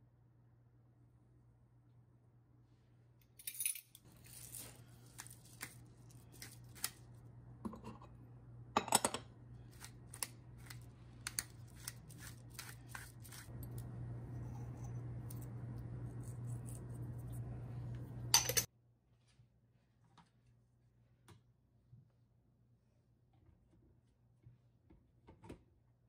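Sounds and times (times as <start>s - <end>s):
utensils clicking and clinking: 18.4s - 18.7s.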